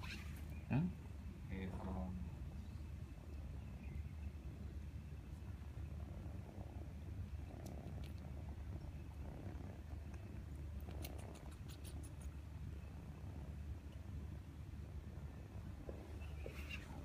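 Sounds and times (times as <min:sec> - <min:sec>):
cat purring: 0:04.5 - 0:17.0.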